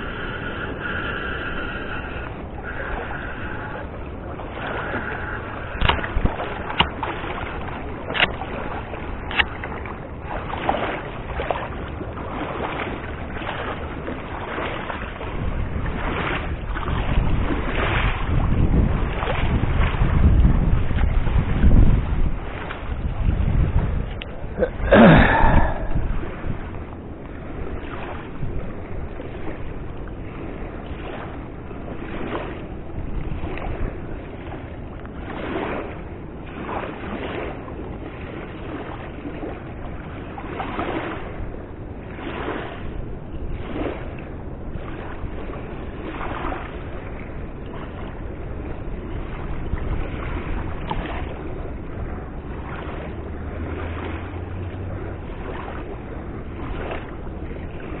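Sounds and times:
river water rushing: 0.0 - 28.2, 49.5 - 58.0
wind on microphone: 0.0 - 58.0.

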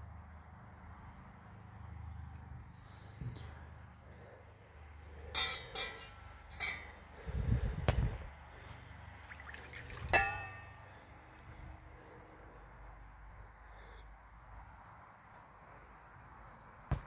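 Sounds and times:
metal pots clinking: 5.3 - 7.0, 9.0 - 10.8
juice pouring into metal bowl: 8.8 - 10.3.

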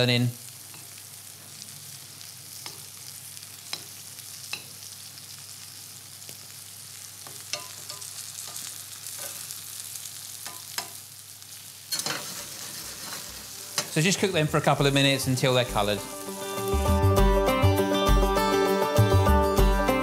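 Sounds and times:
leeks sizzling in a frying pan: 0.0 - 17.1
spoon clicking and scraping a pan: 2.6 - 2.9, 3.7 - 4.8, 7.2 - 9.5, 10.4 - 11.0.

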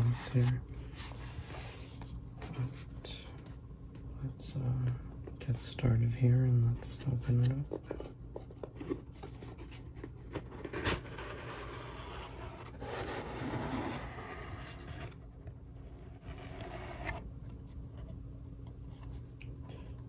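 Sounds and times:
cardboard scraping and rubbing: 8.7 - 17.3.

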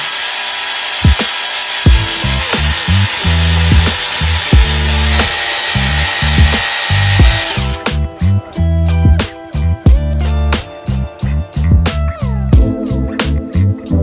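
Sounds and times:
hedge trimmer buzzing: 0.0 - 8.0
background music with steady beat: 1.9 - 14.0.

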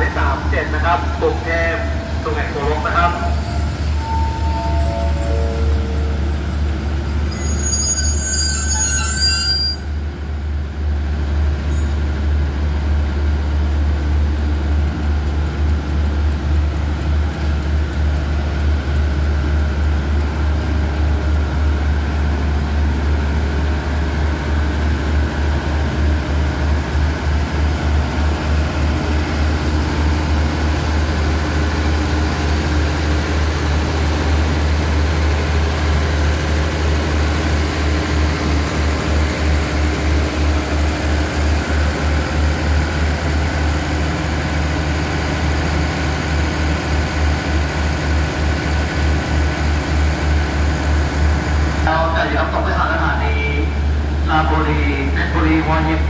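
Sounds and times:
train diesel engine idling: 0.0 - 56.0.

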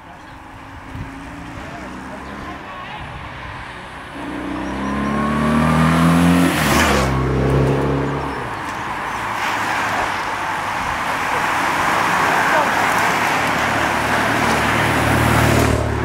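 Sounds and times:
motorcycle passing by: 4.1 - 8.5.

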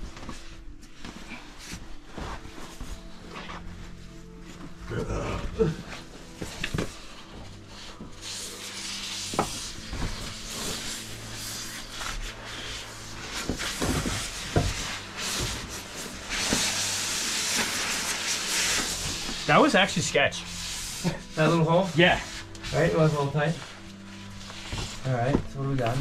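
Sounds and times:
scraping hiss: 6.4 - 26.0.

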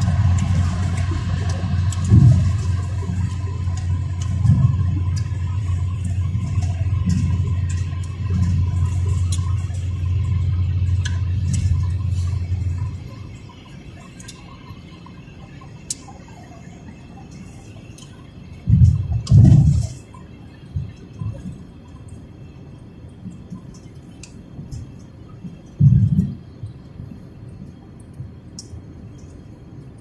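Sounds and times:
car road and engine rumble: 0.0 - 30.0
faint ticks: 23.2 - 30.0.

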